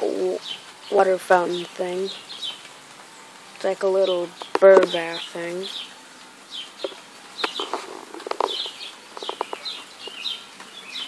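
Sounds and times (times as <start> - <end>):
songbirds chirping: 0.0 - 11.0
light clicks and knocks: 6.8 - 10.2.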